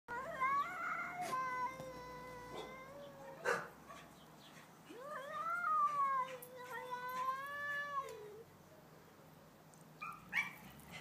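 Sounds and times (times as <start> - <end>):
cats yowling: 4.9 - 8.4.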